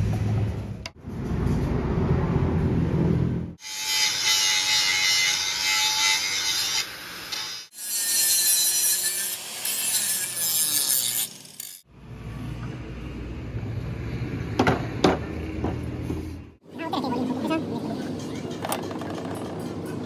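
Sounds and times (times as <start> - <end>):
workshop noise: 0.0 - 20.0
angle grinder grinding metal: 3.6 - 11.9.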